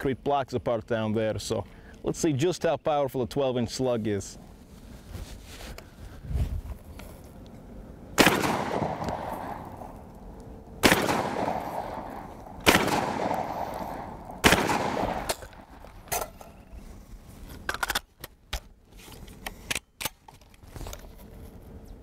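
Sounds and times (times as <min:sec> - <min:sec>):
shotgun shots echoing: 0:08.2 - 0:10.0, 0:10.8 - 0:16.2.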